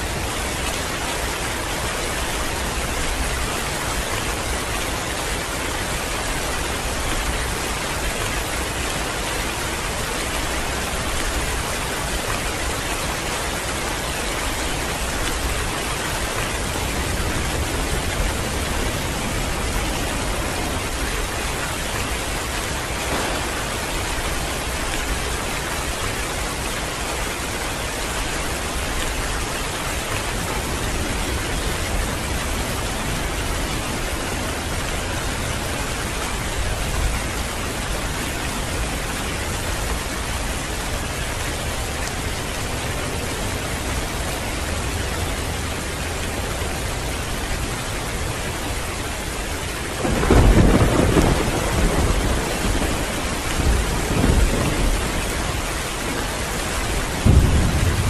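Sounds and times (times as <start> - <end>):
heavy rain falling: 0.0 - 58.0
thunder rumbling: 22.1 - 26.6, 50.0 - 58.0.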